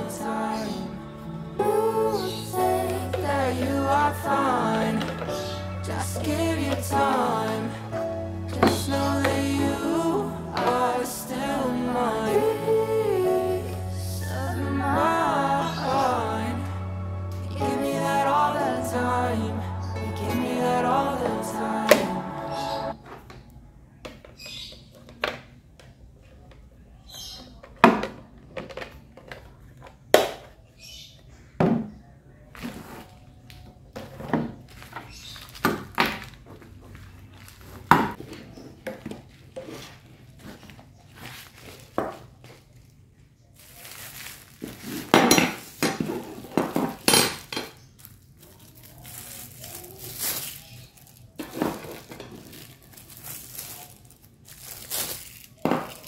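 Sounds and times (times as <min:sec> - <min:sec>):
plastic packaging crinkling: 0:40.2 - 0:56.0.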